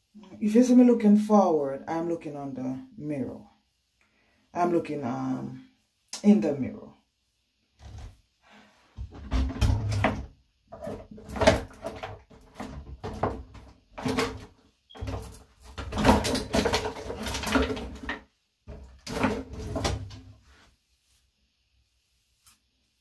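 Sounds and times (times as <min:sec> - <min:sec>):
hands rubbing wet hair: 0:20.5 - 0:23.0.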